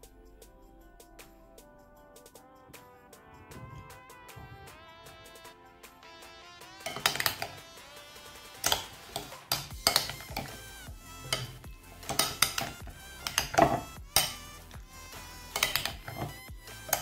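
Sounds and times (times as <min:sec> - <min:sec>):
food clinking against glass bowl: 0:06.9 - 0:07.6, 0:08.6 - 0:10.6, 0:11.2 - 0:14.4, 0:15.5 - 0:17.0.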